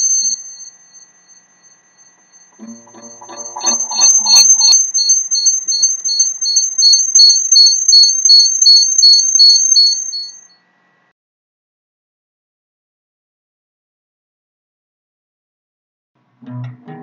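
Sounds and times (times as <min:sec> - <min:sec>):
pulsing high tone: 0:00.0 - 0:10.5
steady high-pitched tone: 0:00.0 - 0:10.5.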